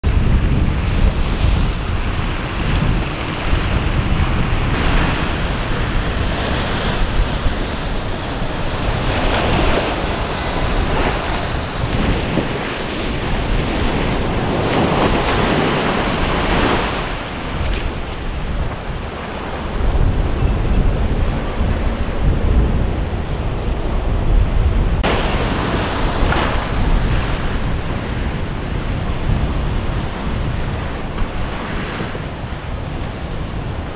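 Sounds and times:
surf breaking and crashing: 0.0 - 33.9
wind rumbling on microphone: 0.0 - 33.9.

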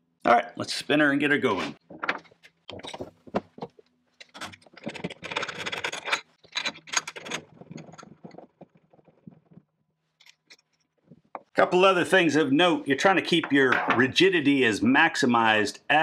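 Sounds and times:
steel tools scraping and clinking: 4.2 - 8.3.

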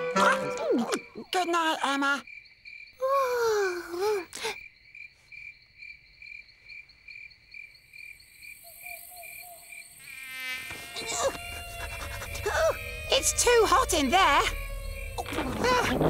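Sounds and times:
music: 0.0 - 1.1
crickets chirping: 0.0 - 16.0
low notes: 11.7 - 16.0.

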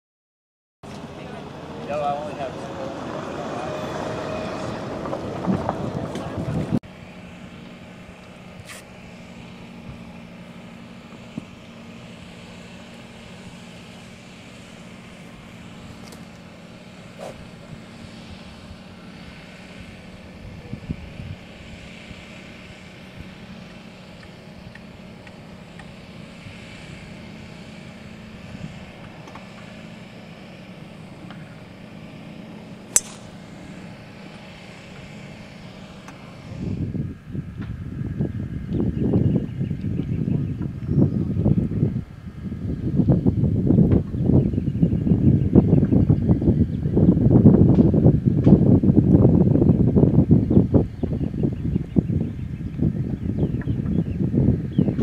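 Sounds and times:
distant engine drone: 0.8 - 55.0
golf club striking ball: 17.2 - 17.6, 32.9 - 33.9.

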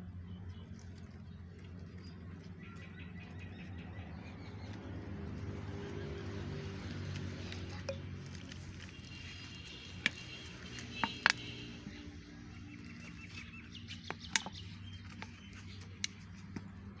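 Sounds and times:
plastic bottle clicks and taps: 10.0 - 11.6, 14.0 - 15.3.

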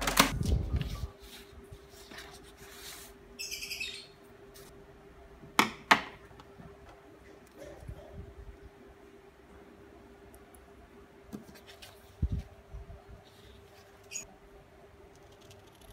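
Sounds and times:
paper sheets shuffled: 0.0 - 3.2
high bird chirp: 3.4 - 4.2.

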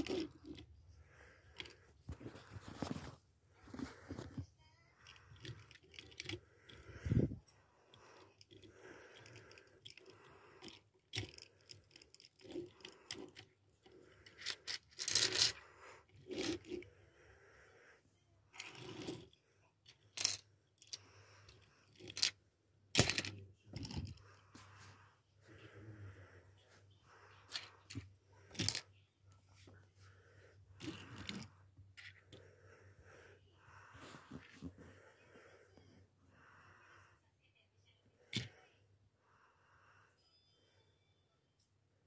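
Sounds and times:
toy truck parts clicking and clinking: 0.0 - 0.8, 5.0 - 7.3, 7.9 - 16.8, 18.5 - 24.2, 27.5 - 29.0.

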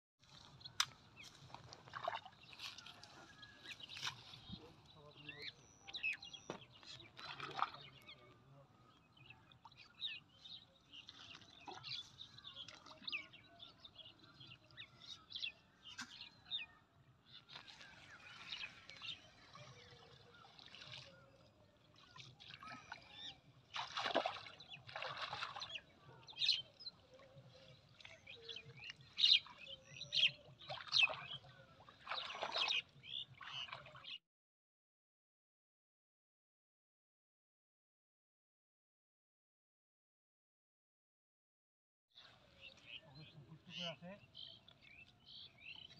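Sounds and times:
water splashing and dripping: 0.2 - 4.4, 6.5 - 7.9, 17.5 - 29.6, 30.6 - 34.0
birds chirping: 0.6 - 34.2, 42.2 - 45.9.

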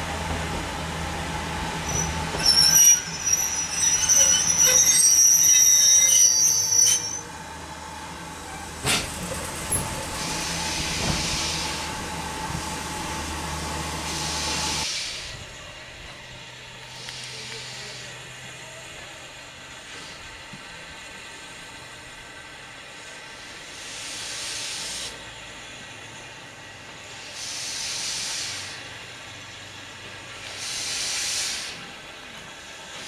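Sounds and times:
train coaches rumbling past: 0.0 - 33.0
wheels squealing on rail: 1.7 - 7.5, 8.4 - 12.8, 13.9 - 15.6, 23.8 - 25.4, 30.3 - 32.0.

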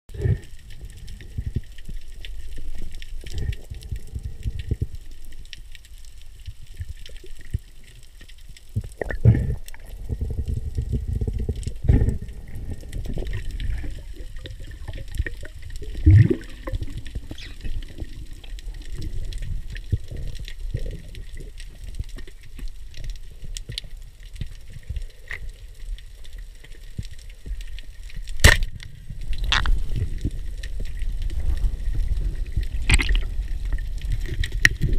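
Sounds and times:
muffled underwater rumble: 0.1 - 34.9
small scattered clicks: 0.4 - 9.9.

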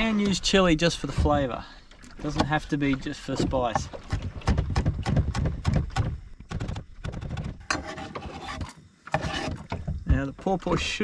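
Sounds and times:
knife scraping board: 7.6 - 9.7.

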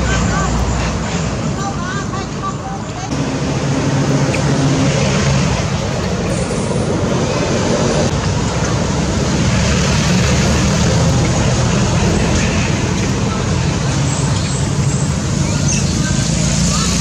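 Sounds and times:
traffic engine noise: 0.0 - 17.0.

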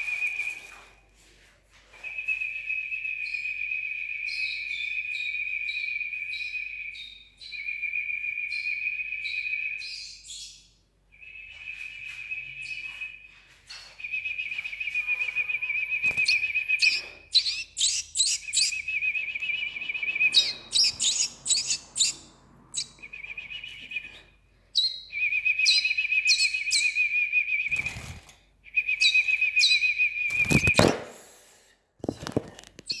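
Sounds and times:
chicks warbling trill: 15.0 - 18.8, 19.7 - 23.0
sharp chirps: 15.0 - 24.1.

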